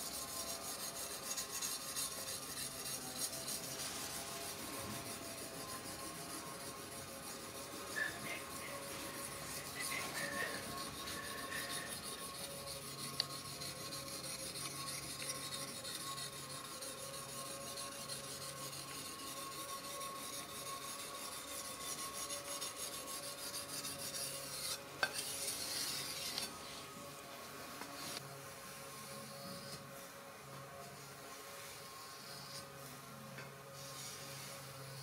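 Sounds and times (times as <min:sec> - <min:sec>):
stone scraping steel blade: 0:00.0 - 0:26.7.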